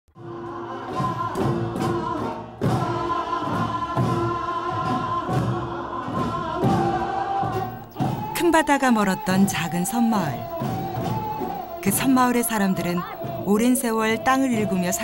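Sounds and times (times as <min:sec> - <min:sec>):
group singing: 0:00.2 - 0:15.0
barrel drums beating: 0:00.9 - 0:15.0.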